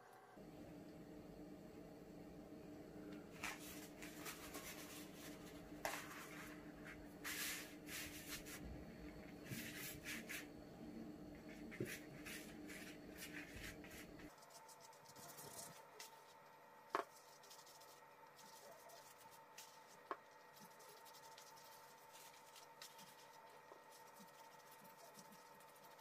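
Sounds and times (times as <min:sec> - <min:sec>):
pastry sheets rustling: 0:03.3 - 0:08.6, 0:11.3 - 0:26.0
brush dabbing butter: 0:03.3 - 0:26.0.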